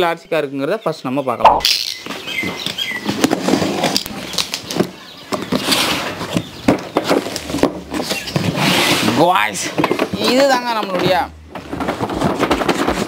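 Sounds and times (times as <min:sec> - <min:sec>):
cardboard flaps rustling and scraping: 0:03.0 - 0:13.0.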